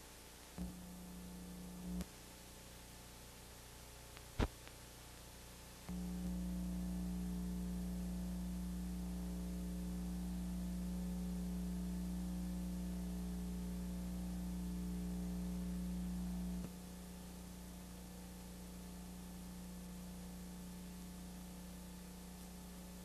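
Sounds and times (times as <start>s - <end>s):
electrical hum: 0.0s - 23.0s.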